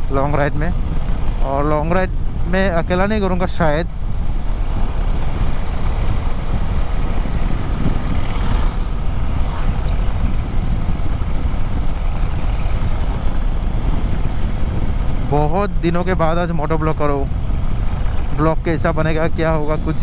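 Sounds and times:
motorcycle road noise: 0:00.0 - 0:20.0
wind buffeting microphone: 0:00.0 - 0:20.0.

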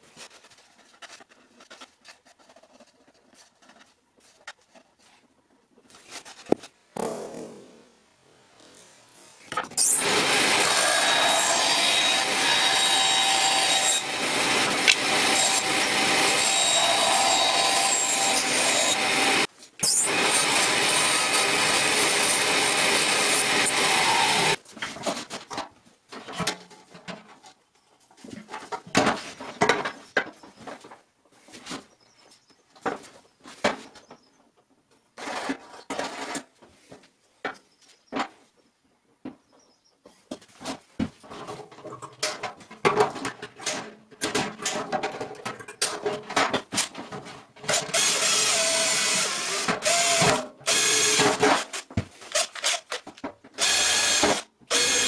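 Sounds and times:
bandsaw cutting board: 0:09.8 - 0:24.6, 0:47.6 - 0:55.0.

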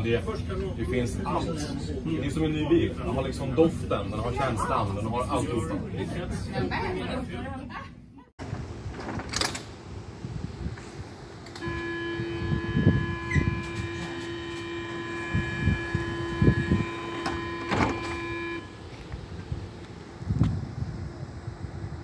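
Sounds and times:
sliding doors closing: 0:08.4 - 0:19.1
electronic door warning tone: 0:11.6 - 0:18.8.

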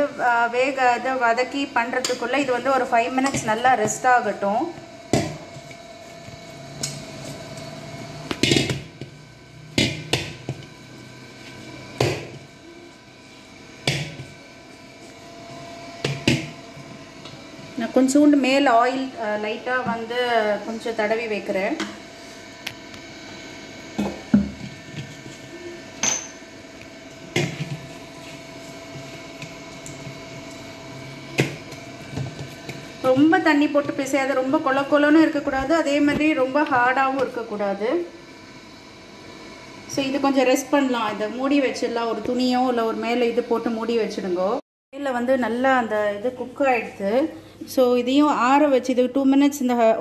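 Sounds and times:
dough knocking against metal bowl: 0:09.8 - 0:10.7
dough being kneaded by hand: 0:27.2 - 0:37.4.

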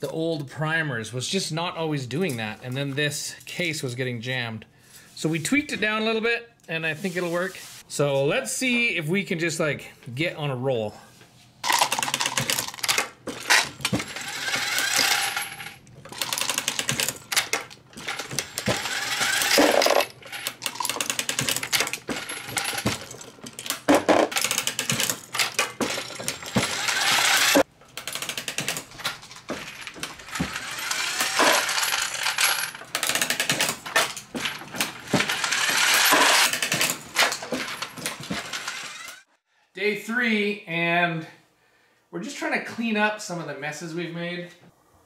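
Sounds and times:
brass cases clinking: 0:11.6 - 0:39.2
reloading press cycling: 0:11.7 - 0:34.2.

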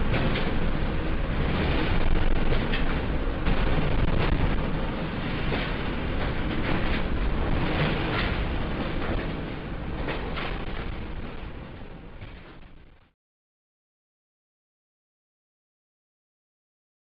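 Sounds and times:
rattles and knocks: 0:00.0 - 0:12.9
earthquake rumble: 0:00.0 - 0:13.1.

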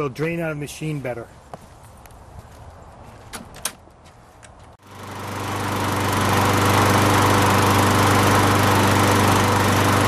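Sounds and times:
lawn mower engine running: 0:04.8 - 0:10.0.

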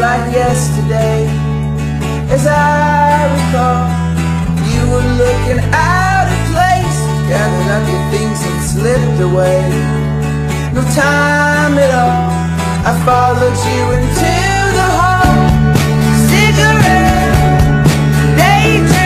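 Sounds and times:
man singing: 0:00.0 - 0:01.5, 0:02.2 - 0:10.0, 0:10.7 - 0:19.0
bass guitar: 0:00.0 - 0:19.0
strummed acoustic guitar: 0:00.0 - 0:19.0.

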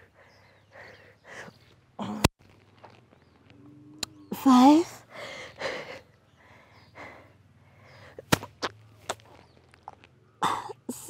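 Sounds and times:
woman breathing hard: 0:00.0 - 0:01.6, 0:05.1 - 0:08.3.

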